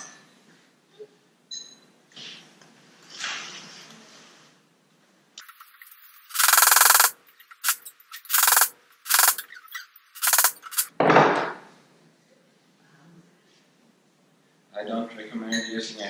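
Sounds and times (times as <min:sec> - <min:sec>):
hammer knocking bearings: 0:05.4 - 0:10.9.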